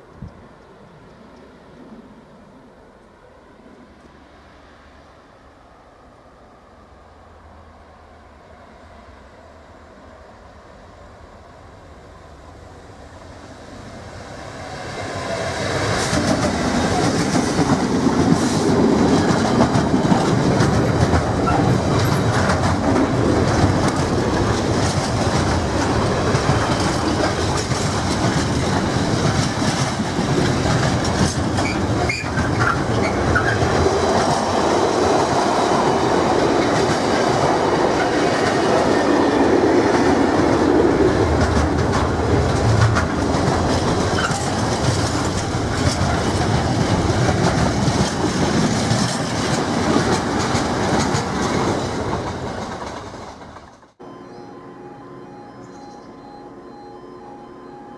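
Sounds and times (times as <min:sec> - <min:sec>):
diesel locomotive: 0:00.0 - 0:57.9
train wheels clacking on rails: 0:14.8 - 0:54.0.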